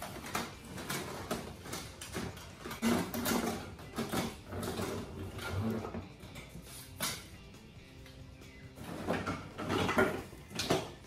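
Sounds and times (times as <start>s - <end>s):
tubes scraping against cardboard: 2.7s - 6.0s.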